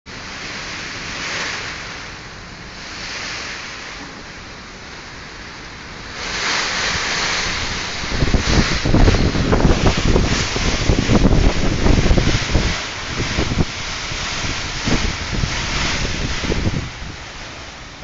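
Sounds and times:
gusting wind: 0.1s - 18.0s
heavy rain: 0.1s - 18.0s
wind buffeting microphone: 5.2s - 18.0s.

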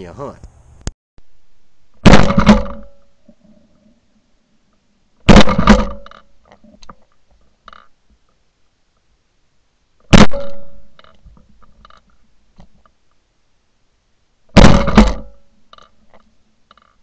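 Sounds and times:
shotgun shots: 2.0s - 3.0s, 5.3s - 6.0s, 10.1s - 10.9s, 14.6s - 15.4s.

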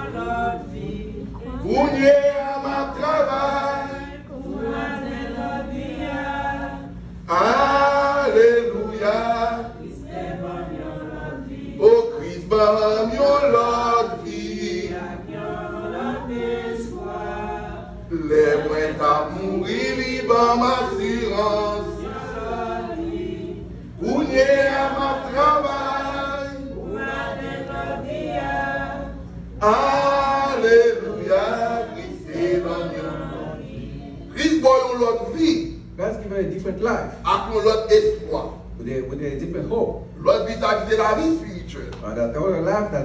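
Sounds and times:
congregation singing a hymn: 0.0s - 35.7s.

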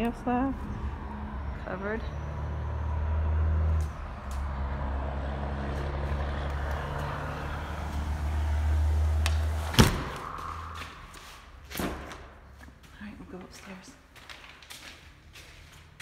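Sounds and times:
low rumble: 0.0s - 11.6s
sliding door thud: 9.3s - 10.3s.

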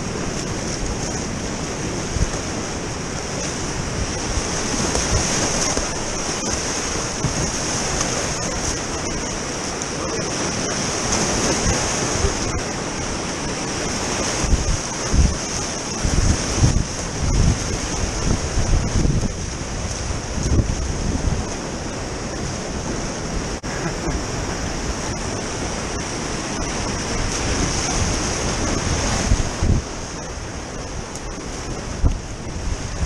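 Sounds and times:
whitewater rapids rushing: 0.0s - 20.6s
wind buffeting microphone: 0.0s - 23.6s, 24.2s - 33.0s.

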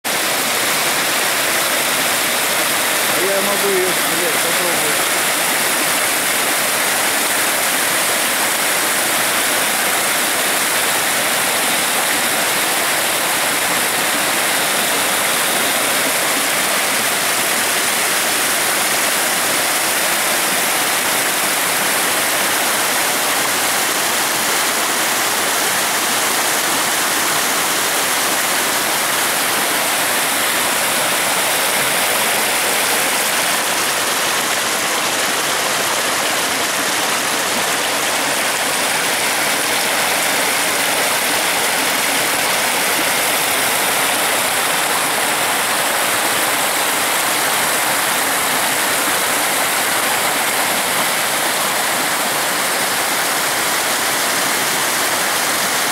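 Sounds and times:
river water rushing over rocks: 0.1s - 55.9s.

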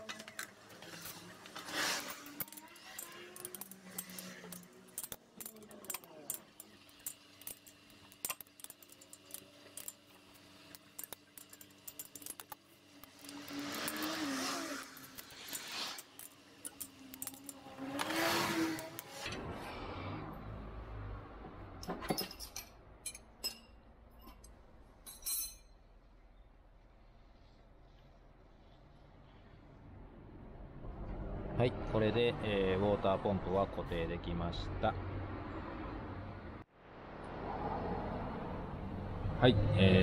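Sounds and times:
metal hand tools clinking: 0.0s - 19.1s, 22.1s - 25.8s.

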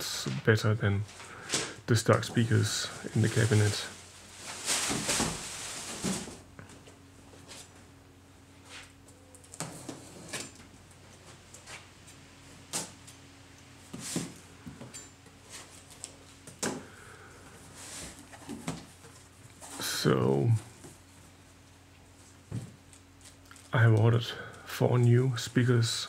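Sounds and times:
cardboard rustling scrape: 2.8s - 6.4s
boxes knocking down: 4.6s - 6.4s.

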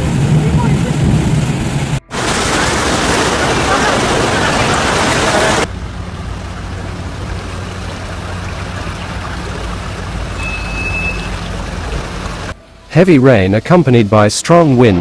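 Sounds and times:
water running around cars: 0.0s - 14.8s
rush of water: 0.0s - 15.0s
vehicle engines humming: 3.3s - 13.1s
short high beep: 10.4s - 11.4s.

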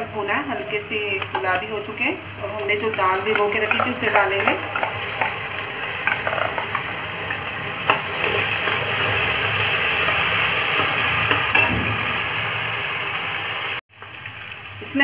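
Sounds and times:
oil sizzling in a pan: 0.0s - 15.0s
spoon stirring against pan: 0.5s - 9.0s.

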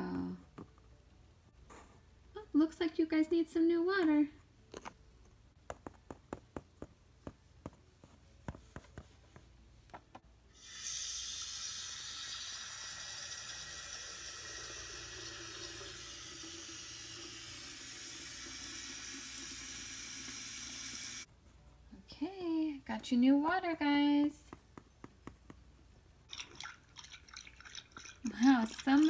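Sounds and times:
tap water running into a bowl: 10.6s - 21.3s, 26.3s - 29.0s.

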